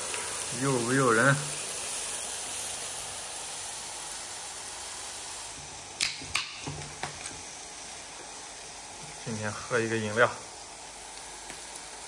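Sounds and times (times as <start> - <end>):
pork sizzling on a griddle: 0.0 - 12.0.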